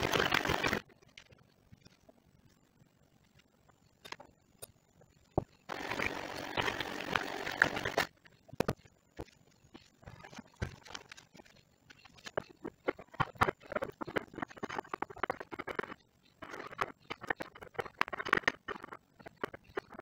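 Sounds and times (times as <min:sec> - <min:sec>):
electric hand mixer running: 0:05.7 - 0:08.1.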